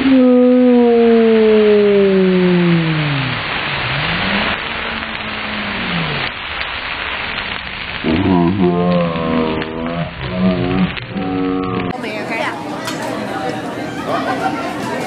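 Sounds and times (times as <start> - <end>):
drawn-out voice tones: 0.0 - 3.5, 8.0 - 12.0
griddle sizzle and flame hiss: 0.0 - 15.0
voices: 8.0 - 15.0.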